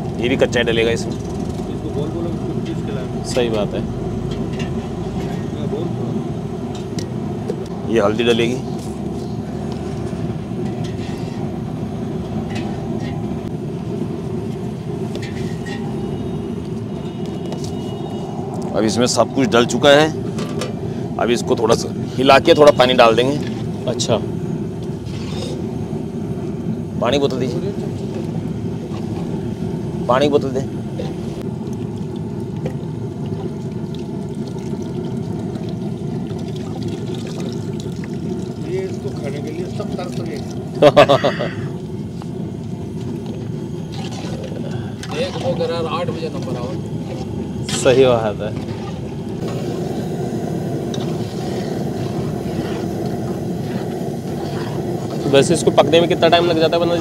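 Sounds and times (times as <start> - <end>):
gas burner roaring: 0.0 - 57.0
water pouring into a pot: 31.6 - 41.0, 43.0 - 49.6.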